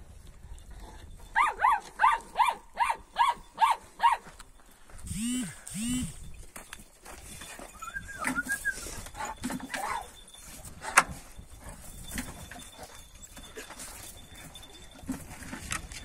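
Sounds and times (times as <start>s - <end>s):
dogs whining: 7.7s - 10.5s.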